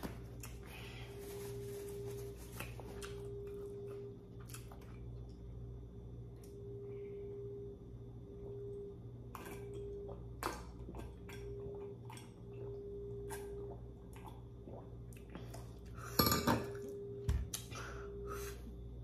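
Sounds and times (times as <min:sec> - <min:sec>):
steady low hum: 0:00.0 - 0:19.0.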